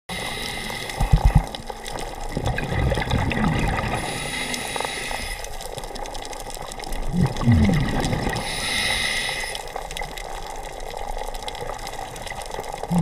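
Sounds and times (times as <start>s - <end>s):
underwater air bubbles: 0.1s - 13.0s.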